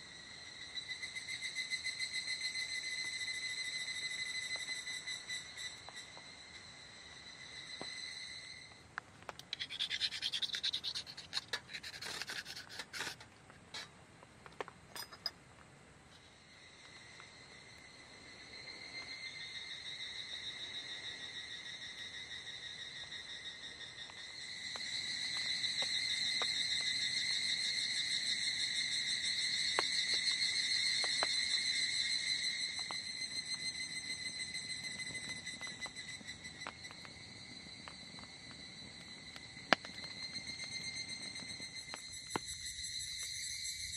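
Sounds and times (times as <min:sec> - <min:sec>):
insects chirring: 0:00.0 - 0:43.9
campfire crackling: 0:08.7 - 0:16.1, 0:29.4 - 0:43.4
scratchy rubbing and clicking: 0:09.4 - 0:13.9.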